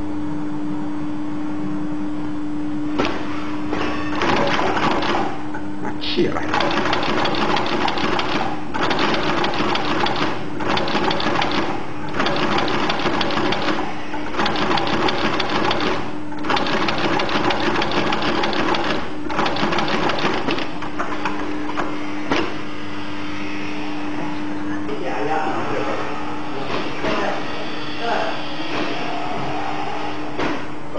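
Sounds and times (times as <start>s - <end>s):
steady hum: 0.0s - 30.9s
sewing machine stitching: 4.1s - 5.4s, 6.5s - 20.8s.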